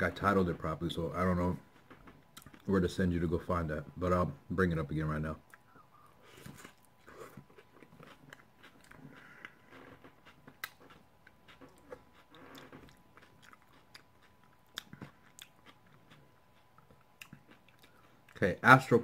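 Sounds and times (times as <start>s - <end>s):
person chewing crunchy food: 1.1s - 2.7s, 5.5s - 18.4s.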